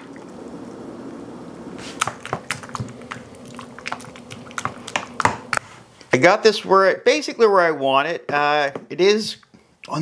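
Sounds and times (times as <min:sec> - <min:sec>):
wet squishing of mashing: 0:01.8 - 0:05.6.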